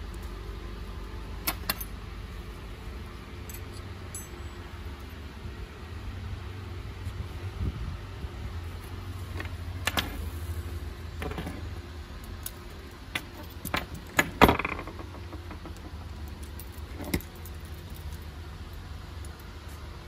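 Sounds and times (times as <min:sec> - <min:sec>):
low hum: 0:00.0 - 0:20.0
metal snap hook clinking: 0:03.5 - 0:04.5.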